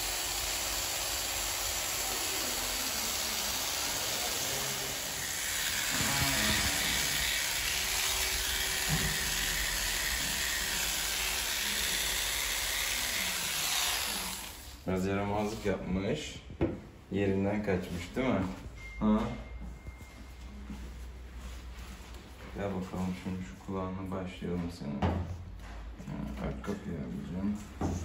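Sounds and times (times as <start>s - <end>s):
electric hair clippers buzzing: 0.0s - 14.8s.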